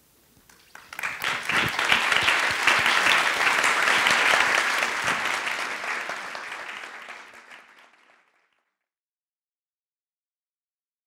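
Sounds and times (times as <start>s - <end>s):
audience clapping: 0.5s - 8.7s.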